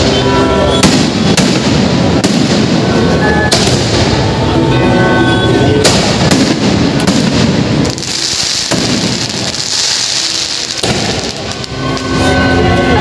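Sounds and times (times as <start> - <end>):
continuous rumble: 0.0 - 13.0
firework shells bursting: 5.8 - 12.2
high hissing crackle: 5.8 - 13.0.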